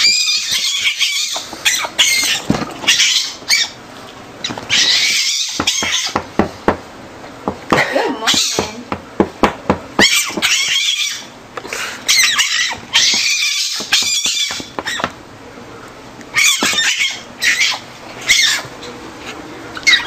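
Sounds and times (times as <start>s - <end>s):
fox squeaking calls: 0.0s - 3.8s, 4.4s - 6.2s, 8.3s - 8.7s, 10.0s - 11.4s, 12.1s - 15.1s, 16.3s - 18.7s, 19.8s - 20.0s.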